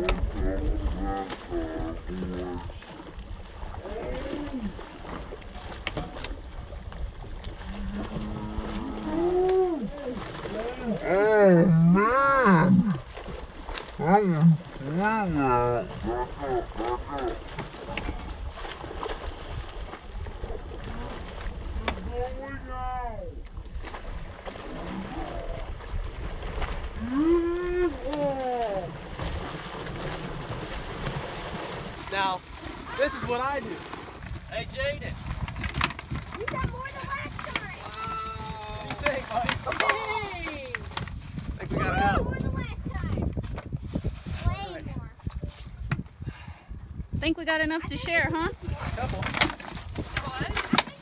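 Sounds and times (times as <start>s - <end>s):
fish splashing in water: 0.0s - 11.6s, 12.4s - 22.1s, 23.5s - 41.7s
wind rumbling on microphone: 0.0s - 51.0s
low wind rumble: 28.8s - 50.8s.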